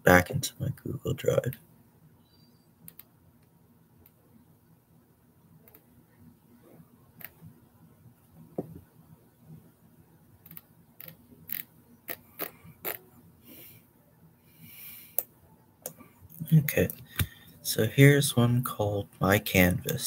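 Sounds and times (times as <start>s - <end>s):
computer mouse clicks: 2.9s - 3.1s.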